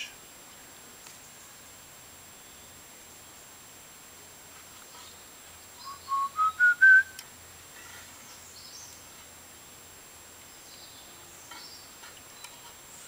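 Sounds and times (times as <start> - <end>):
faint high chirps: 5.0 - 9.0
whistled notes rising: 5.8 - 7.2.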